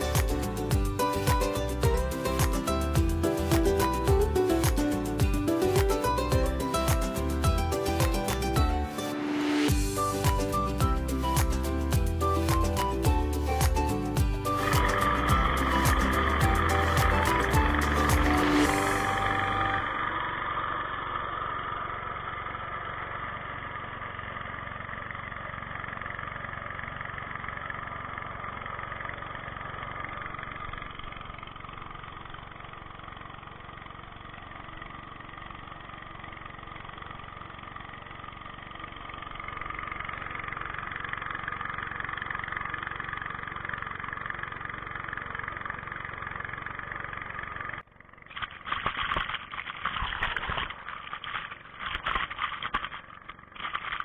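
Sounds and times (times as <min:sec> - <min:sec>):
boat engine running: 0:00.0 - 0:25.2.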